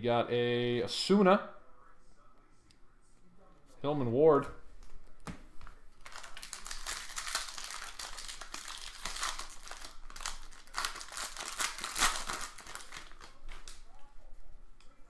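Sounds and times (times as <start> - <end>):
foil wrappers crinkling: 6.0 - 14.0.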